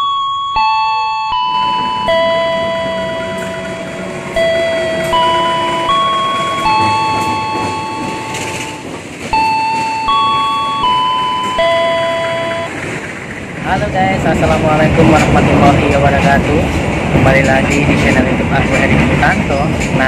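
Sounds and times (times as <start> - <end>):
bell-like electronic melody: 0.0 - 13.0.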